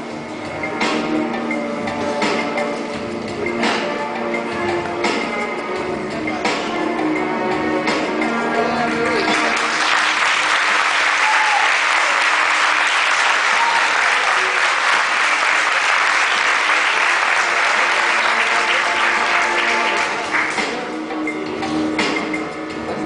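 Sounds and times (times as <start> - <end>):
audience applauding: 9.2 - 20.8.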